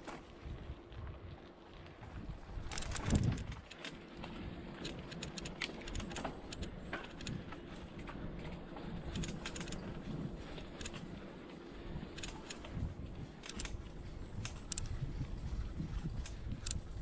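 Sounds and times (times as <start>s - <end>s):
mountain bike rolling on dirt: 0.0s - 17.0s
bike clicks and rattles: 2.0s - 17.0s.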